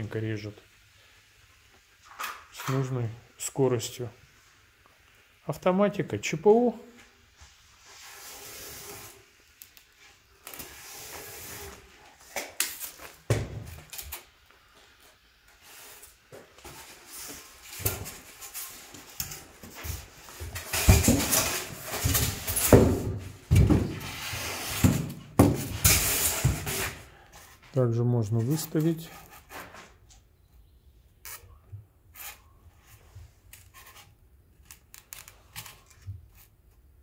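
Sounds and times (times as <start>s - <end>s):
foam scraping and rubbing: 7.5s - 9.5s, 10.1s - 12.3s, 15.6s - 27.6s.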